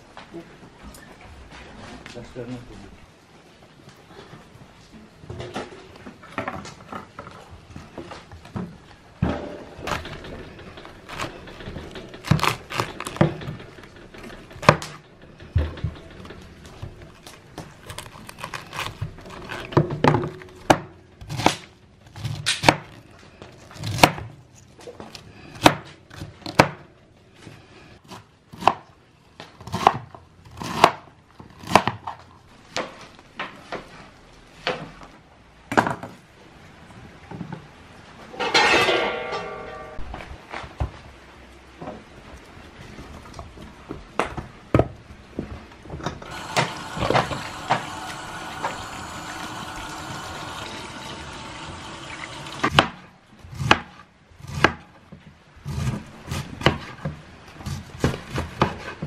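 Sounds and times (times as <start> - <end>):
knife chopping cabbage on board: 29.6 - 32.0, 52.7 - 54.8.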